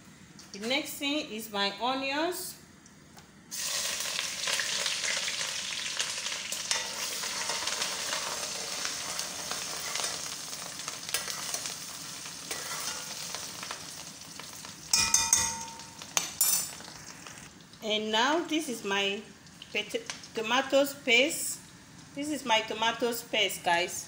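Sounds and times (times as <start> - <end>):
onions sizzling in hot oil: 3.5 - 17.8
spoon clinking against pot: 14.9 - 16.8.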